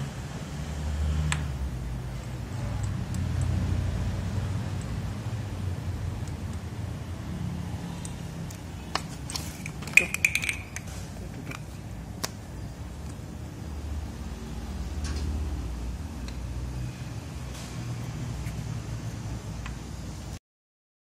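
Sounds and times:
light metal clicks and clink: 8.9 - 11.7.

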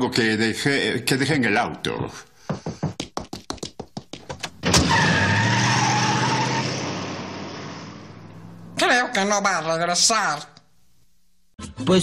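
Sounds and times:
quick running footsteps: 2.4 - 4.6
tyres squealing: 4.5 - 6.9
car speeding away: 4.6 - 8.8.

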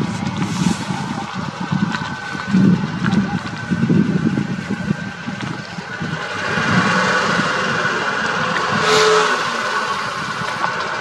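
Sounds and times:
jeep engine running: 0.0 - 11.0.

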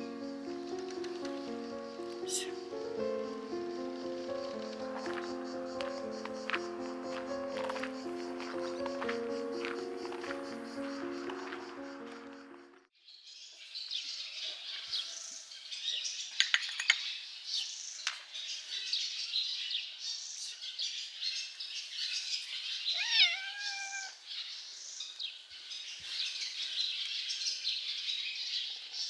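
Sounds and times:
small birds chirping: 0.0 - 29.0
kitten meowing: 23.0 - 24.2.

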